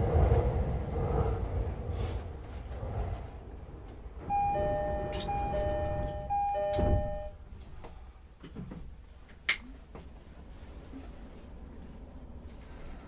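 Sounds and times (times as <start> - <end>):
train rumble: 0.0 - 13.0
train doors thudding shut: 4.2 - 7.4
two-note door chime: 4.3 - 7.4.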